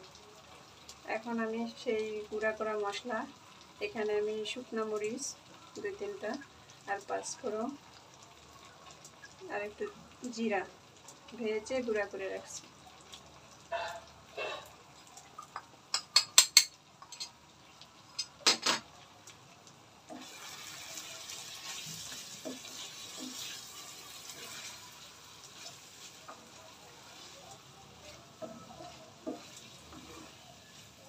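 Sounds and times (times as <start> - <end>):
spices sizzling in oil: 0.0 - 31.0
wooden spatula scraping pan: 28.4 - 30.9.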